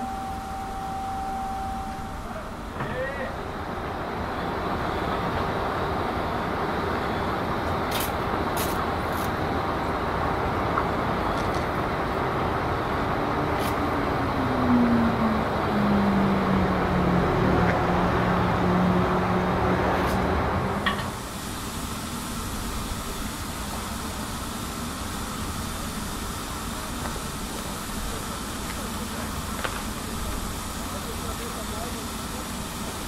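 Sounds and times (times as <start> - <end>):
low hum: 0.0 - 4.4
steam locomotive hiss and rumble: 0.0 - 33.0.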